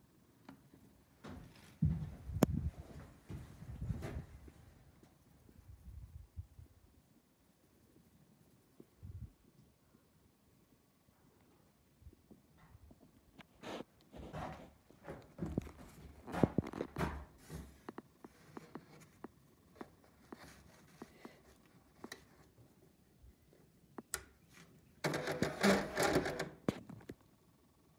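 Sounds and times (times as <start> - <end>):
receipt printer printing: 25.0 - 26.6
scattered clicks and knocks: 25.0 - 27.2.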